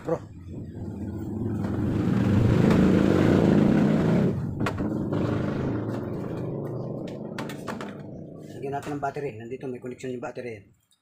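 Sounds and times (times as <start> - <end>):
vehicle engine passing by: 0.4 - 8.6.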